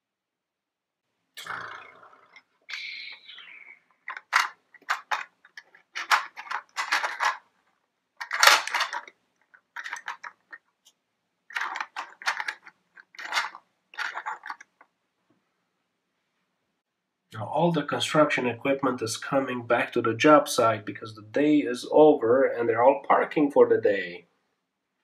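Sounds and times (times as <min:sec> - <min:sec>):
plastic toys clattering: 0:02.3 - 0:14.9.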